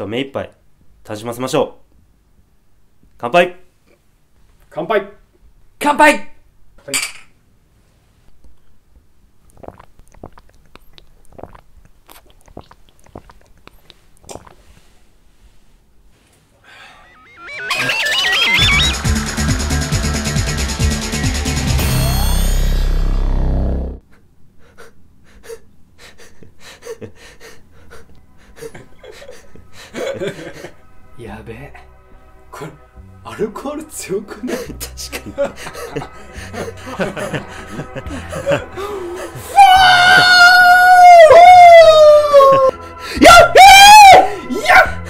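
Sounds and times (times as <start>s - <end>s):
people gulping drinks: 9.4s - 14.7s
electronic music: 17.0s - 24.0s
man breathing and gasping: 24.6s - 30.8s, 35.6s - 39.4s.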